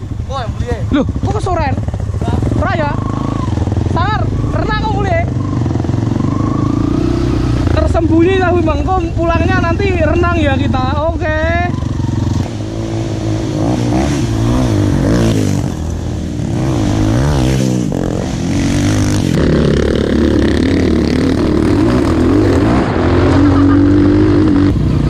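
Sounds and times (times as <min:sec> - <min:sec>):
motorcycle engines revving: 0:00.0 - 0:25.0.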